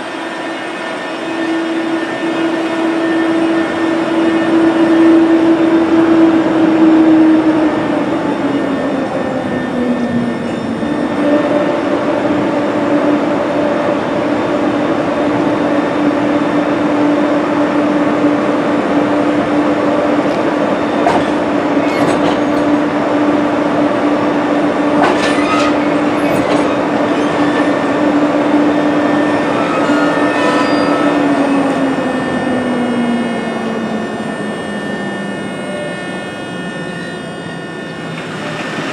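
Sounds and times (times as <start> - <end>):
electric locomotive hum: 0.0 - 38.9
wheel squeals: 25.1 - 28.0, 28.7 - 32.5.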